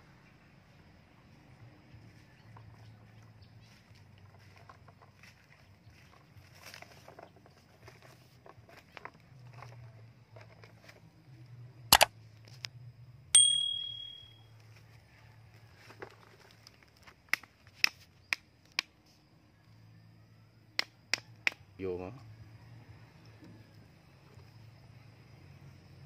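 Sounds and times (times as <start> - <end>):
sharp strike with high ringing: 13.4 - 14.4.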